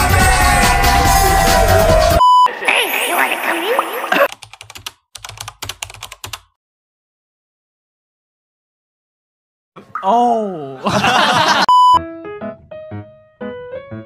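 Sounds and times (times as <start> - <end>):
pop music: 0.0 - 2.2
voices: 2.5 - 4.3
keyboard typing clicks: 4.3 - 6.4
short electronic beep: 11.7 - 12.0.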